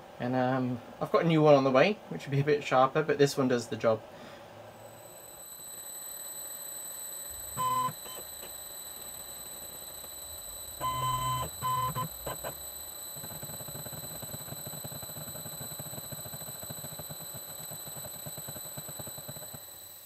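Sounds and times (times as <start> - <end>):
low machine hum: 0.0 - 19.8
faint high whine: 0.0 - 20.0
short electronic beeps: 7.2 - 19.2.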